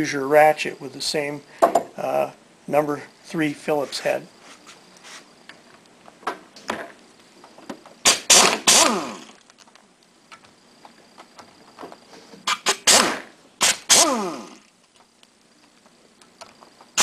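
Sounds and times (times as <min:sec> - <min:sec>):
pneumatic air gun bursts: 0:08.0 - 0:09.4, 0:12.4 - 0:14.7.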